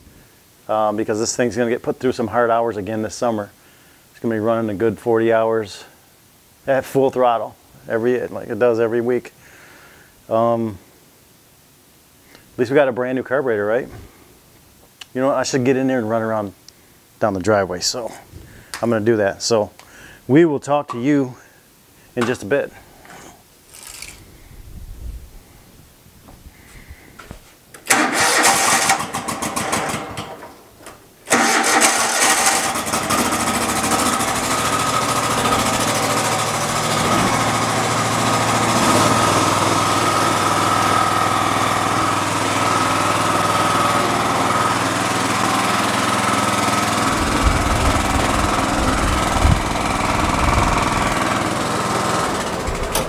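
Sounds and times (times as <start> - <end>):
starter motor cranking: 23.7 - 24.2, 27.8 - 30.4, 31.3 - 53.0
mower engine running: 27.9 - 30.5, 31.3 - 53.0.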